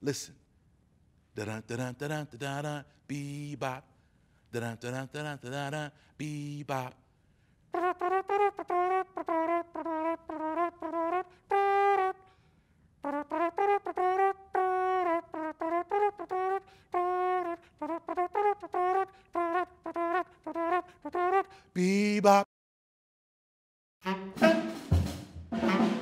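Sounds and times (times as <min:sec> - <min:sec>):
solo trumpet playing bebop: 0:07.7 - 0:12.3, 0:13.0 - 0:21.6, 0:24.0 - 0:26.0.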